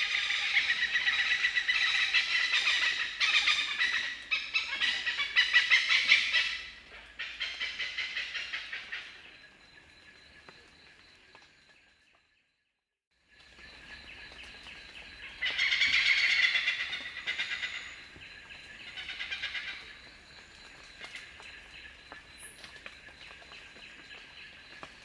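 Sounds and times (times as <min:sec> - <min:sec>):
hornbills cackling: 0:00.0 - 0:09.4, 0:15.4 - 0:18.0, 0:18.9 - 0:19.9.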